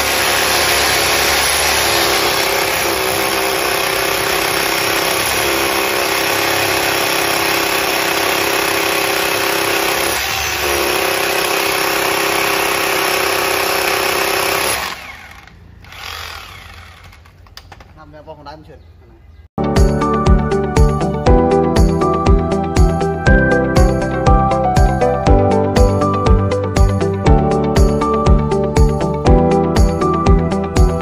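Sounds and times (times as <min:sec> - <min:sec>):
rotary hammers drilling into concrete: 0:00.0 - 0:17.6.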